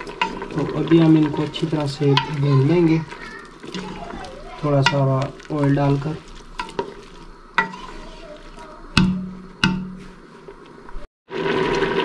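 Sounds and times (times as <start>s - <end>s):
steam hissing from pot: 0.0s - 10.6s
wooden spoon knocking on metal pot: 8.9s - 10.2s.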